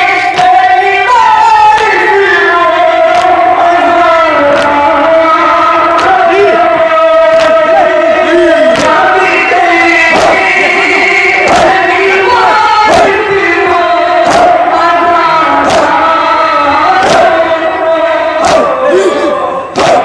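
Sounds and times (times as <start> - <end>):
men chanting together: 0.0 - 20.0
hands slapping chests: 0.3 - 0.6, 3.1 - 3.4, 4.5 - 4.8, 6.0 - 6.2, 7.3 - 7.6, 8.7 - 9.0, 10.1 - 10.8, 11.4 - 11.8, 14.2 - 14.6, 15.6 - 16.0, 17.0 - 17.4, 18.4 - 18.7, 19.7 - 20.0.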